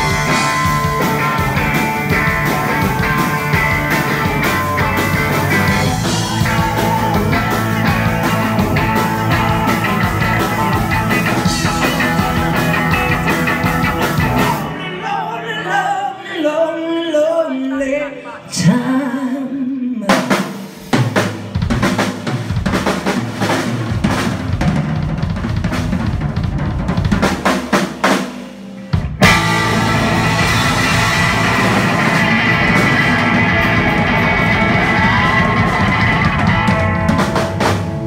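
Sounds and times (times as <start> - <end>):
rock band final chord: 0.0 - 14.8, 28.2 - 38.0
drum kit fills: 0.0 - 15.1, 20.1 - 38.0.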